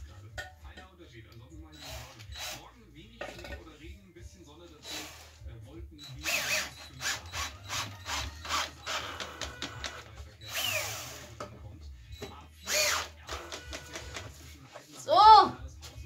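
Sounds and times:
cordless drill whining: 0:01.8 - 0:02.6, 0:04.8 - 0:05.3, 0:06.0 - 0:11.3, 0:12.2 - 0:14.3.

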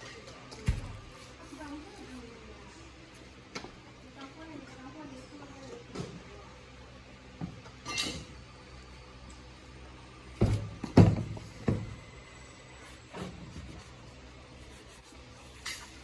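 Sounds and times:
knocks and thumps on a bench: 0:10.4 - 0:12.0.

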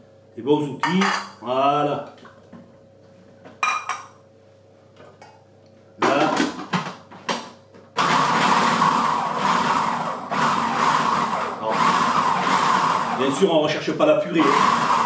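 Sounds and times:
food processor motor chopping: 0:08.0 - 0:13.6, 0:14.2 - 0:15.0.

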